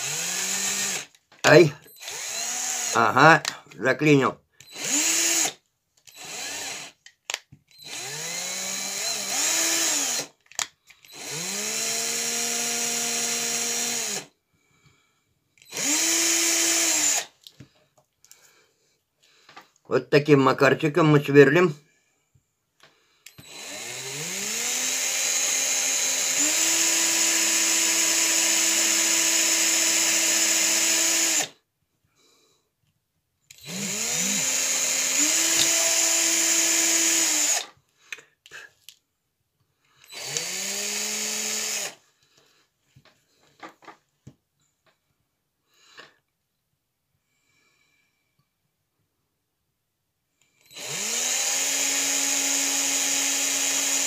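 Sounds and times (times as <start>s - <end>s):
cordless drill whining: 0.0s - 3.6s, 4.6s - 14.4s, 15.6s - 17.6s, 22.8s - 31.6s, 33.5s - 37.8s, 39.9s - 42.6s, 50.4s - 54.0s.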